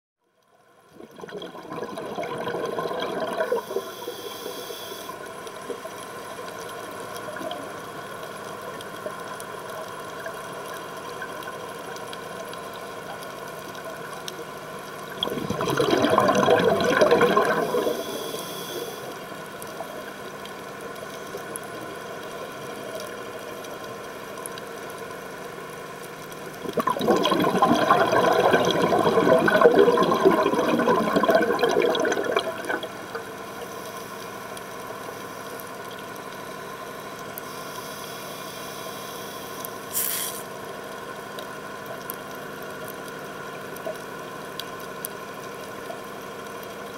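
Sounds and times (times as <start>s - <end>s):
boat engine hum underwater: 0.2s - 46.9s
regulator bubbles rushing: 0.9s - 4.3s, 15.0s - 18.2s, 26.5s - 33.5s.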